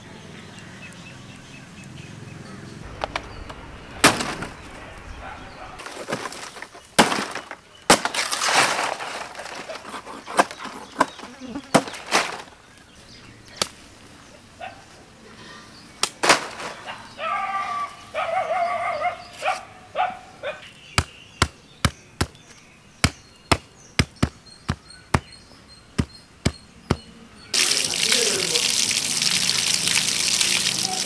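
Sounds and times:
leaf rustling: 0:01.1 - 0:15.2, 0:16.0 - 0:18.1, 0:27.6 - 0:31.0.

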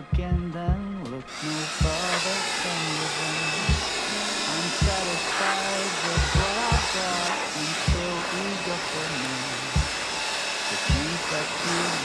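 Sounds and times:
low thumps: 0:00.0 - 0:02.2, 0:03.7 - 0:04.1, 0:04.7 - 0:05.2, 0:06.2 - 0:07.0
background music with bass and melody: 0:00.0 - 0:02.3, 0:06.2 - 0:07.0
steady rushing noise: 0:01.3 - 0:12.0.

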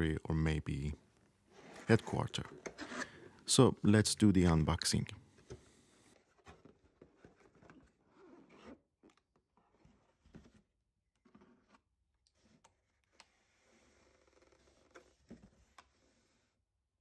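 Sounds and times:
cardboard rustling and scraping: 0:06.1 - 0:08.8.

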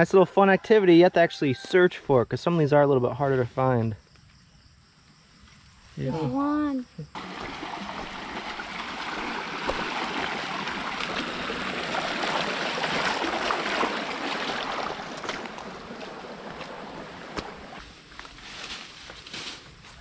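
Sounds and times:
water rushing over rocks: 0:07.2 - 0:17.8
feet splashing in water: 0:07.2 - 0:17.9.

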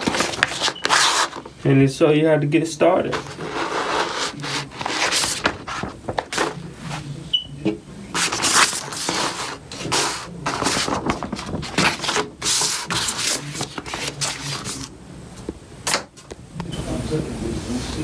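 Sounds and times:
paper and packaging rustling: 0:00.0 - 0:01.6, 0:03.0 - 0:07.2, 0:08.1 - 0:14.9.

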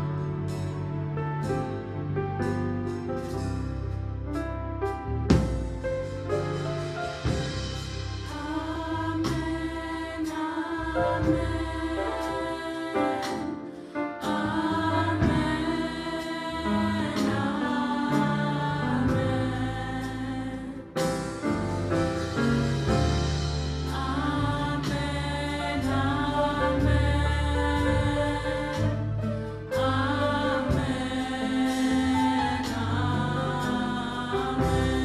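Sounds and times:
instrumental accompaniment with bass: 0:00.0 - 0:35.0
women singing in harmony: 0:08.2 - 0:21.0, 0:23.2 - 0:35.0.

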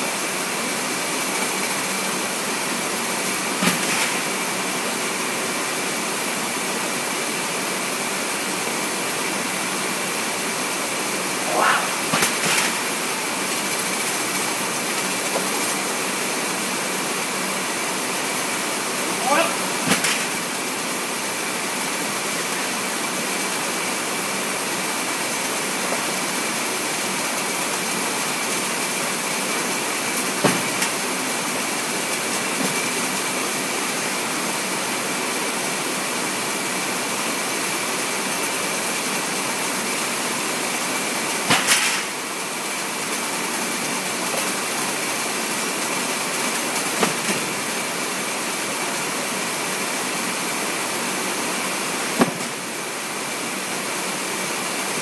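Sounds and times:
conveyor machinery rushing: 0:00.2 - 0:35.1.

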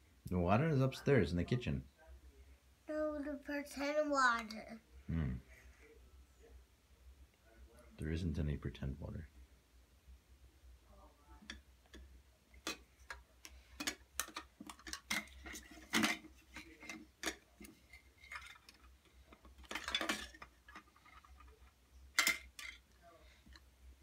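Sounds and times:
plastic toy dishes clattering: 0:11.4 - 0:23.6
plastic toy dishes clicking: 0:13.8 - 0:17.5.

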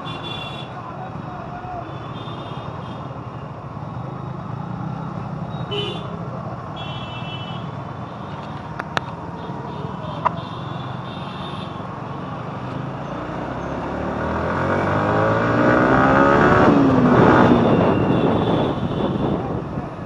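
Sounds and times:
street traffic rumble: 0:00.0 - 0:20.0
vehicle engine revving: 0:13.1 - 0:18.7.

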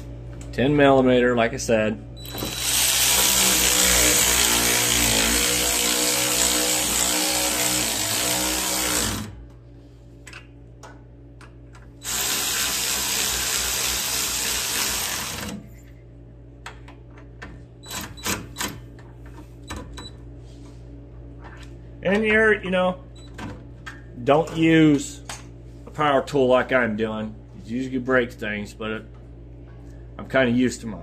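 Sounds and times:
cordless power tool motor: 0:02.2 - 0:09.4, 0:12.0 - 0:15.6.

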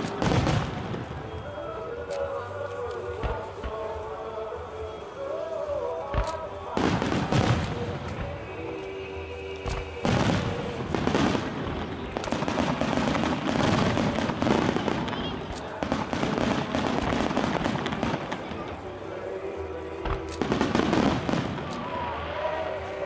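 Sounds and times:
firework bursts and pops: 0:00.0 - 0:01.6, 0:06.1 - 0:08.6, 0:09.6 - 0:18.8, 0:20.0 - 0:22.6
music: 0:00.0 - 0:23.0.

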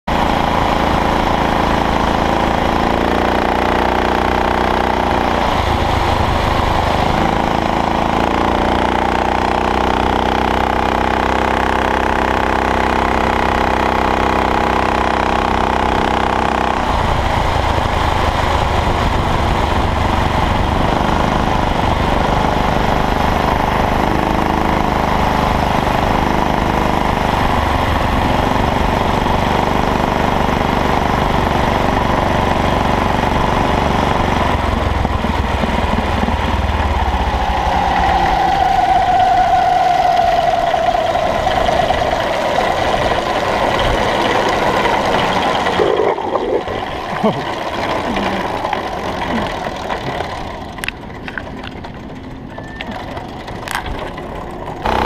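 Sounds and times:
small engine running: 0:00.0 - 0:55.0.

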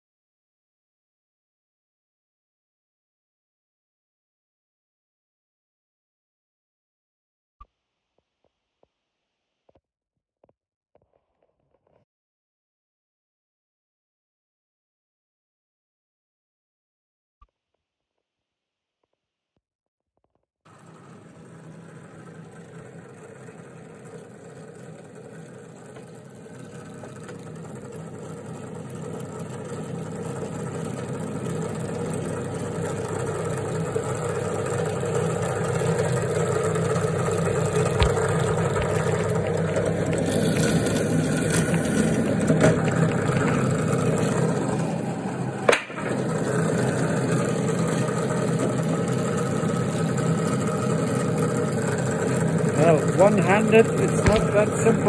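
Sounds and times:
drill bit boring into wood: 0:20.7 - 0:55.0
drill press motor running: 0:20.7 - 0:55.0.

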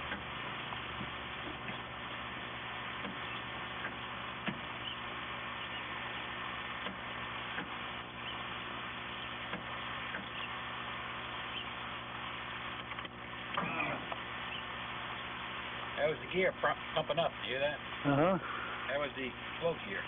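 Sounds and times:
hydraulic pump running: 0:12.8 - 0:14.4.

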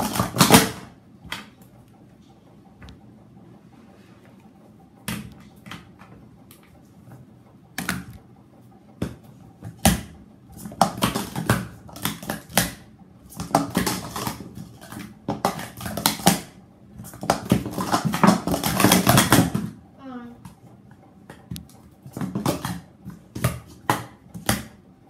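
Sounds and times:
plastic cups clattering: 0:10.6 - 0:19.7, 0:22.1 - 0:24.7.

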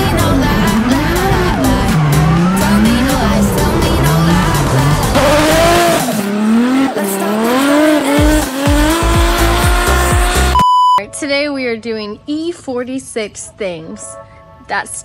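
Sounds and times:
car engine revving: 0:00.0 - 0:10.6
background music: 0:00.0 - 0:15.0.

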